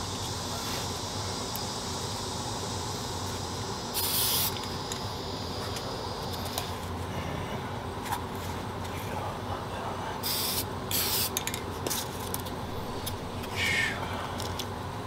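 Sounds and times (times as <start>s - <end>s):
steady background noise: 0.0s - 15.0s
spray paint can hiss: 0.1s - 6.8s, 10.2s - 14.0s.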